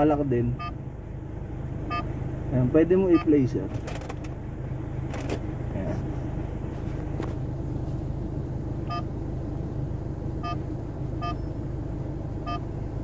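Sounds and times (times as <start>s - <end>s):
car engine idling: 0.0s - 13.0s
short electronic beeps: 0.6s - 0.8s, 8.9s - 9.1s, 10.4s - 10.6s, 11.2s - 11.5s.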